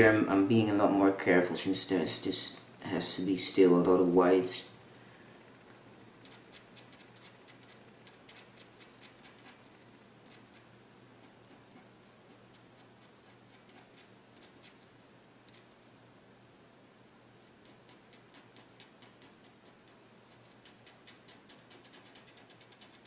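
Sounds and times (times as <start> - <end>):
pen scratching on paper: 11.2 - 14.8, 17.6 - 23.0.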